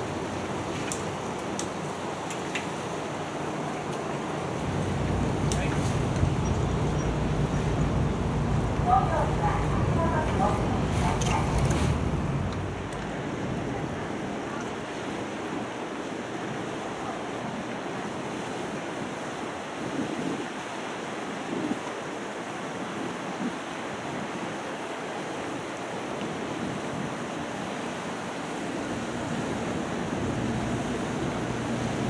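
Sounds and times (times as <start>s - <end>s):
low ship engine hum: 0.0s - 19.6s, 27.8s - 32.0s
wind buffeting microphone: 0.0s - 24.6s
water ambience: 0.0s - 32.0s.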